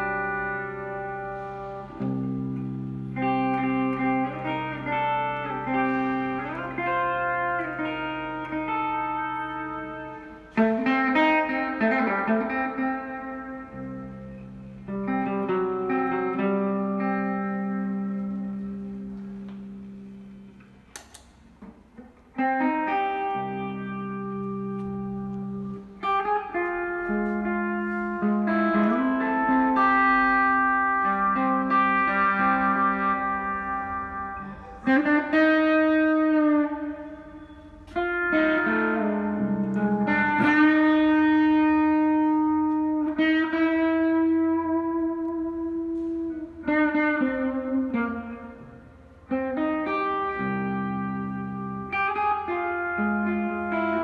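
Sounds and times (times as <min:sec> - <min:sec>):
electric guitar playing slow blues: 0:00.0 - 0:54.0.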